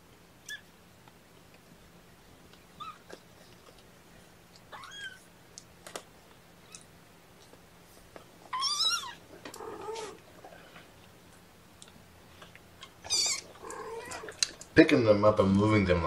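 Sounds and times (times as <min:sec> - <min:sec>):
kitten mewing: 0:04.7 - 0:05.3, 0:08.5 - 0:10.2, 0:13.0 - 0:14.4.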